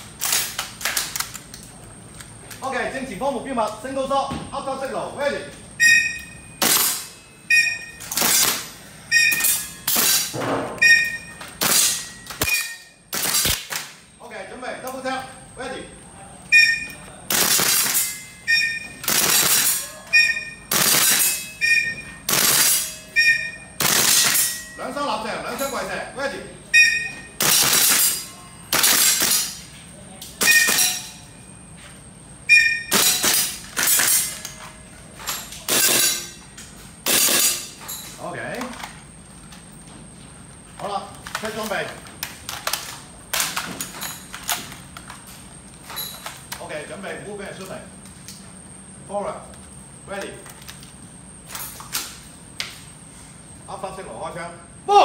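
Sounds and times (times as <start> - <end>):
brief ringing tone: 5.8 - 6.6, 7.2 - 8.0, 9.1 - 9.8, 10.8 - 11.4, 18.2 - 19.0, 19.8 - 20.7, 21.4 - 22.3, 22.9 - 23.8, 26.8 - 27.4
metallic pings of steel targets: 5.8 - 13.1, 16.6 - 24.9, 30.4 - 31.4
airsoft rifle shots with hiss: 6.6 - 7.1, 11.6 - 14.0, 17.3 - 18.1, 19.0 - 19.8, 20.7 - 21.5, 22.3 - 22.8, 23.8 - 24.5, 27.4 - 29.6, 32.9 - 34.3, 35.7 - 36.3, 37.0 - 37.6.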